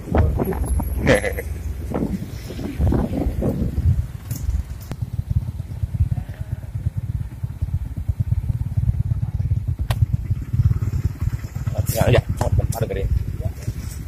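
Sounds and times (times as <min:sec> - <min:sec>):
motorcycle engine rumbling: 0:00.0 - 0:14.0.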